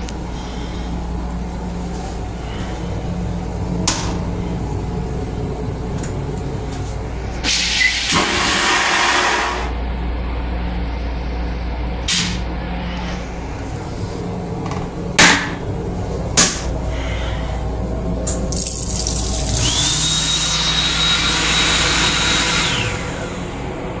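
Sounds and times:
train rumbling: 0:00.0 - 0:18.7
toilet flushing whoosh: 0:07.4 - 0:09.8.

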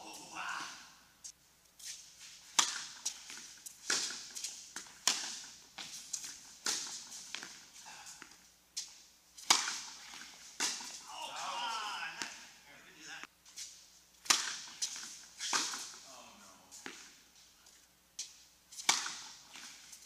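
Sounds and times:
tennis ball struck by rackets: 0:02.4 - 0:08.4, 0:09.4 - 0:12.4, 0:14.2 - 0:16.0, 0:16.8 - 0:17.2, 0:18.8 - 0:20.0
ball bouncing on indoor court: 0:02.5 - 0:08.4, 0:09.4 - 0:11.1, 0:14.2 - 0:16.0, 0:18.2 - 0:19.8.

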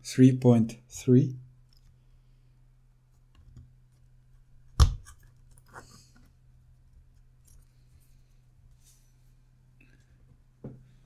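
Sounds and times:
low steady hum: 0:00.0 - 0:11.0
faint ticks of small parts: 0:01.6 - 0:02.0.

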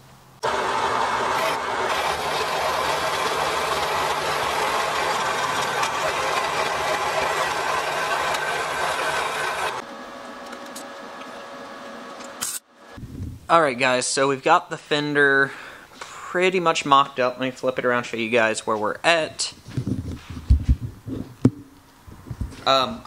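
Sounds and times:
saw motor humming: 0:00.4 - 0:09.9.

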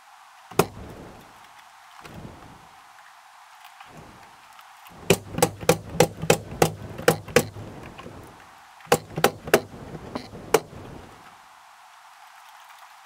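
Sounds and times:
pneumatic nail gun firing: 0:00.6 - 0:00.8, 0:05.0 - 0:07.6, 0:08.9 - 0:10.7.

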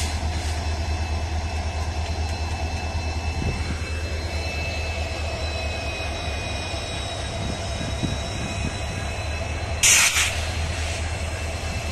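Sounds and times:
electric locomotive humming: 0:00.0 - 0:11.9
loud hissing burst: 0:09.8 - 0:11.1.

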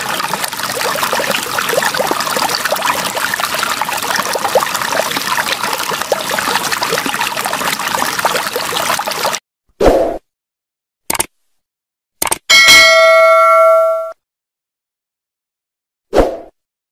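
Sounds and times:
water pouring into tub: 0:00.0 - 0:09.4.

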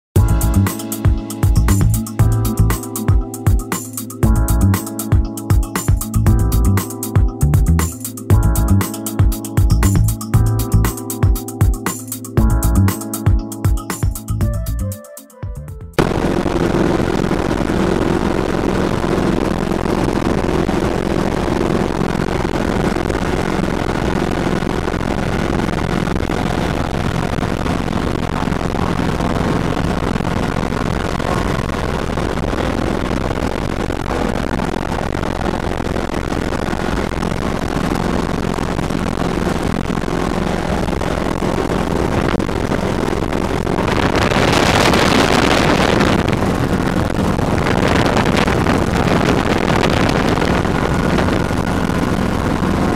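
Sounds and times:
wind noise rush: 0:16.0 - 0:52.9.

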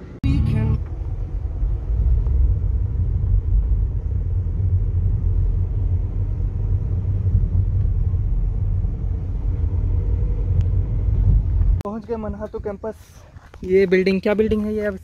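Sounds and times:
car interior road rumble: 0:00.0 - 0:12.5.

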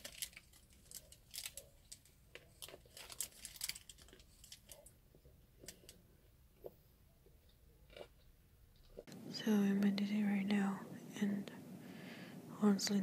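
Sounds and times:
paper wrapper crinkling: 0:00.0 - 0:05.0.

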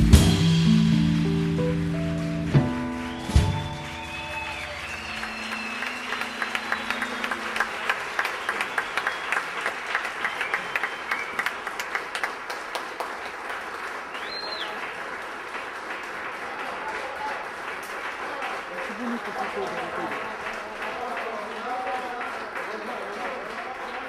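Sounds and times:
band holding final note: 0:00.0 - 0:08.5
audience applauding: 0:01.6 - 0:24.0
high whistle: 0:02.9 - 0:11.6, 0:14.2 - 0:14.8.

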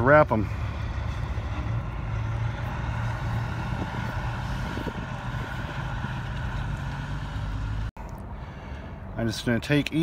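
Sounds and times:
truck engine idling: 0:00.0 - 0:10.0.

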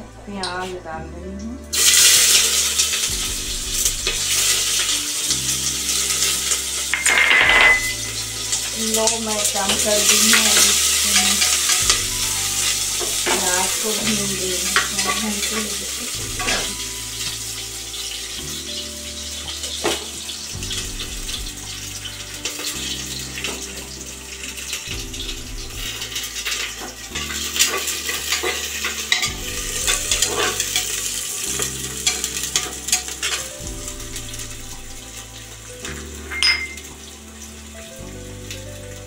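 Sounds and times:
onion sizzling in oil: 0:01.6 - 0:39.0
spatula scraping and clinking pot: 0:10.0 - 0:17.4, 0:26.1 - 0:33.5, 0:35.9 - 0:36.9.

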